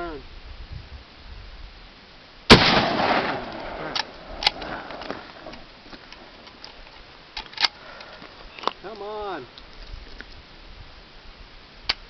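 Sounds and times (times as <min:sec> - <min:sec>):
gunshot with echo: 0:02.5 - 0:04.1.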